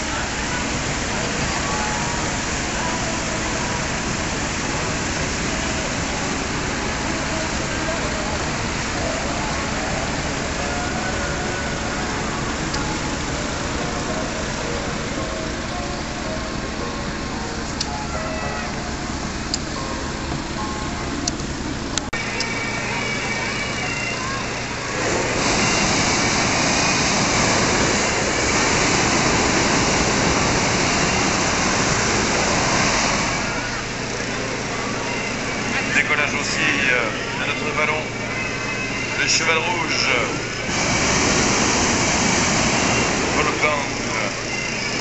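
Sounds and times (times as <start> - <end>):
inflator fans rushing air: 0.0 - 45.0
propane burner blast: 24.2 - 45.0.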